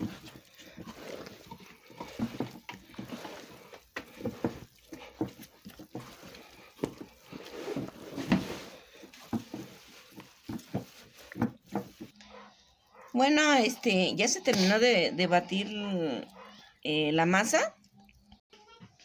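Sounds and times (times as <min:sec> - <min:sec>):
wet dough slaps and squelches: 0:00.0 - 0:12.2.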